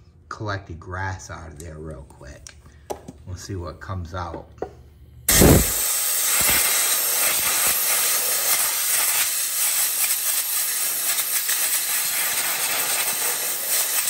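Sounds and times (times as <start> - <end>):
air blow gun hissing: 5.3 - 14.0.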